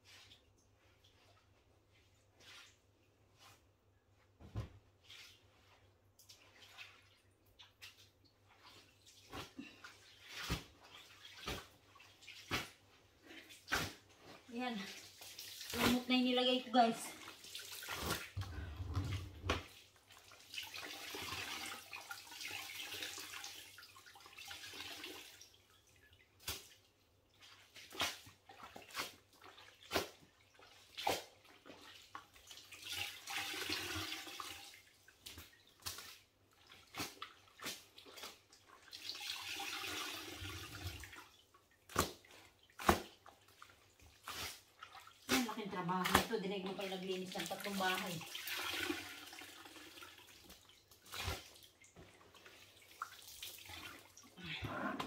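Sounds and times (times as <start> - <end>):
water pouring into bucket: 14.6 - 19.5, 20.1 - 25.6, 31.8 - 35.6, 36.6 - 41.4, 44.1 - 54.4
water dripping: 20.0 - 54.4.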